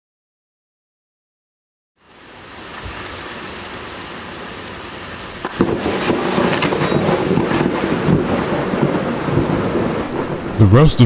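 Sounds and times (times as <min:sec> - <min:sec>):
heavy rain hissing: 0:02.0 - 0:11.0
thunder crack and rumble: 0:05.4 - 0:11.0.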